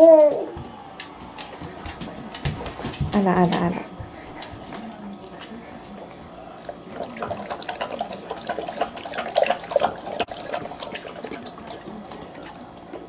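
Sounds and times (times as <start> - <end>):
dog lapping water: 5.0 - 13.0.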